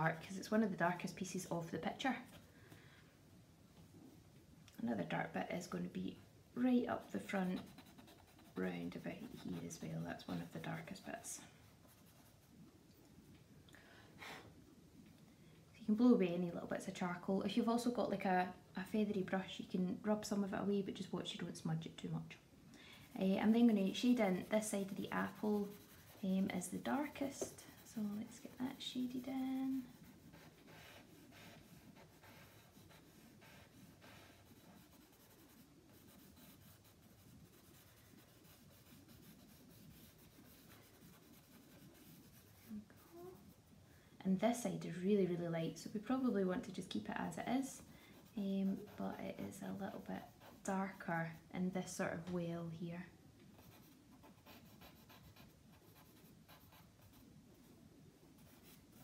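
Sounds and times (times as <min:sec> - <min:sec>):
charcoal scratching on paper: 0:07.0 - 0:12.6, 0:23.1 - 0:43.6, 0:48.2 - 0:51.4, 0:53.6 - 0:57.3, 0:58.4 - 0:59.0.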